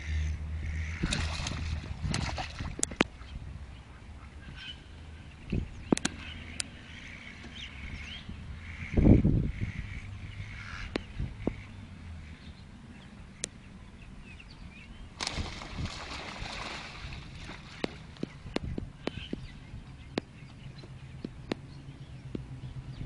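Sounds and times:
ducks splashing and flapping: 0.8s - 3.0s, 15.2s - 19.3s.

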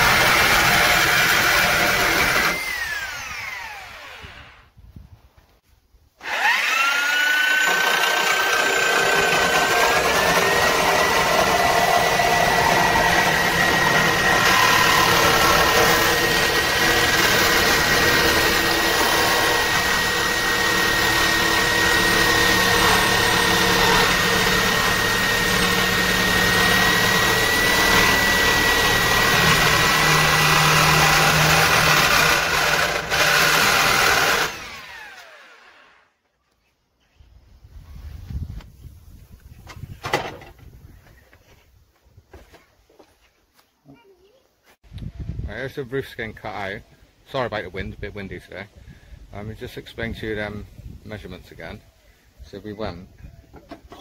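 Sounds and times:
reciprocating saw cutting metal: 0.0s - 4.6s, 6.2s - 36.1s.

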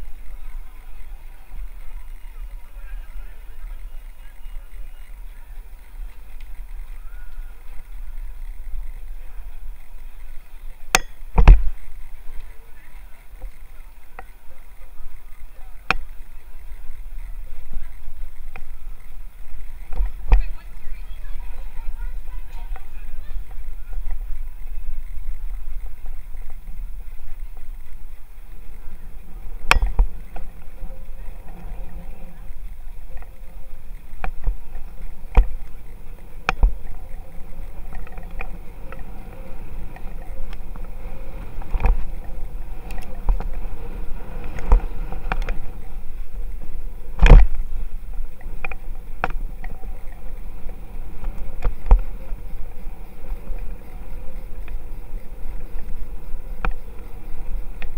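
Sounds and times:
low road rumble: 0.0s - 57.9s
wind on microphone: 21.8s - 57.9s.

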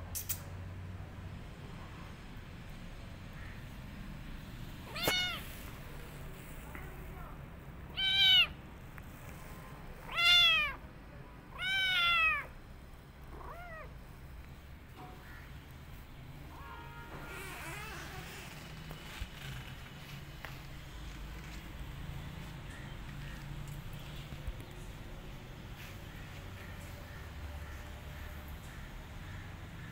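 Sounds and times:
kitten meowing: 4.9s - 5.7s, 7.9s - 8.6s, 10.0s - 10.8s, 11.5s - 12.5s, 13.3s - 13.9s.

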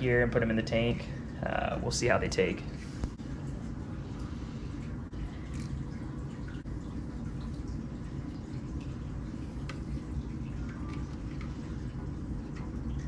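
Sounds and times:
water dripping and splashing: 0.0s - 13.0s.

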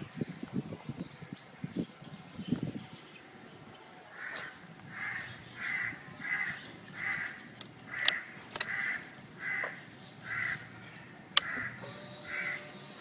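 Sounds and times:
crow cawing: 4.2s - 10.7s, 11.4s - 12.7s.

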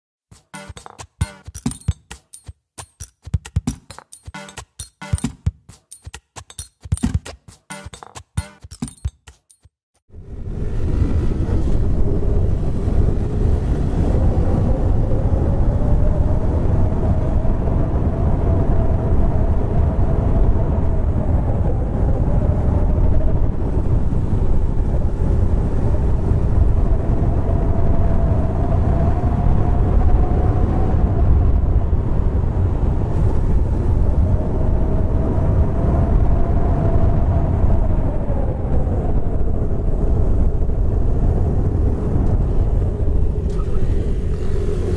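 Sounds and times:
wind noise: 10.1s - 44.9s.

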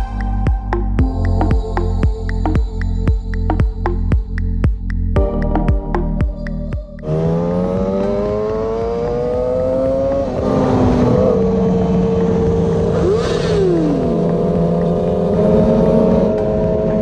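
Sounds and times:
motorcycle engine accelerating: 7.0s - 17.0s
engine passing by: 7.1s - 17.0s.

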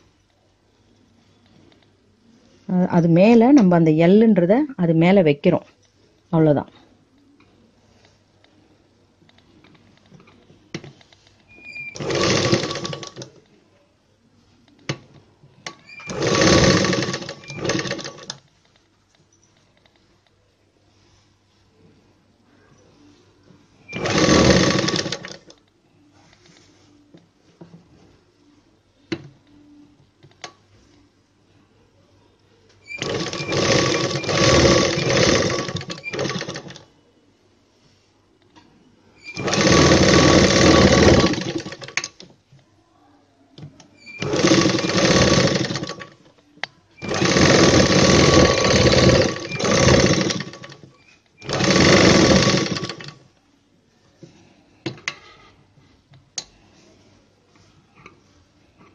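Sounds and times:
sewing machine stitching: 11.5s - 13.4s, 15.6s - 18.4s, 23.9s - 25.6s, 32.8s - 36.9s, 39.2s - 42.2s, 44.0s - 46.3s, 47.0s - 53.2s.

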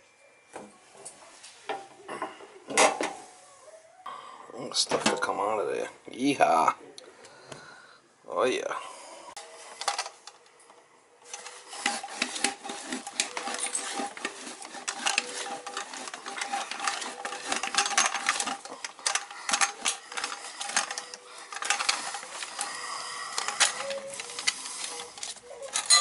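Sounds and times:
tubing cutter scraping and clicking: 11.2s - 26.0s
metal tube ringing: 25.8s - 26.0s.

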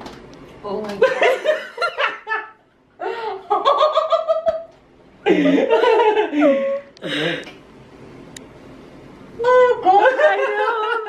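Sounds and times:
person laughing: 5.2s - 7.5s.

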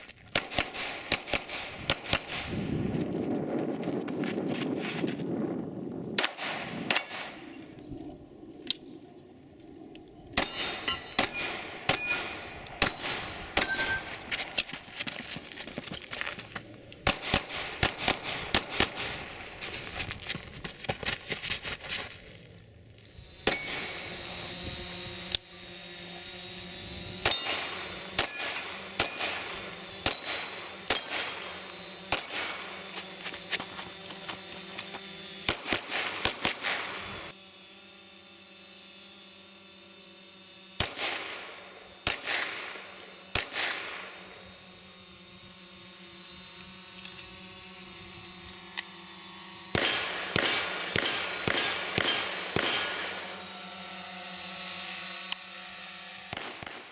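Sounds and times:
pistol shots: 0.3s - 2.5s, 6.2s - 7.3s, 17.0s - 19.3s, 30.0s - 31.4s, 35.5s - 36.9s, 40.8s - 42.7s, 43.3s - 44.0s, 49.7s - 53.1s, 56.3s - 56.9s.

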